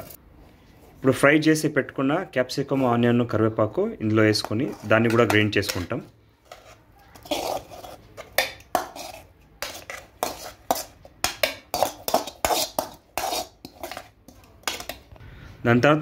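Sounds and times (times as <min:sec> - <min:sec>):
metal ladle scraping metal pan: 0:04.2 - 0:15.0.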